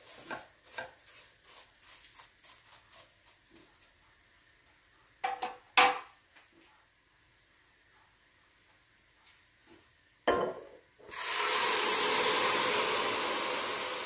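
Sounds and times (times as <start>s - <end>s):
wooden spoon scraping a pot: 0.0s - 3.5s.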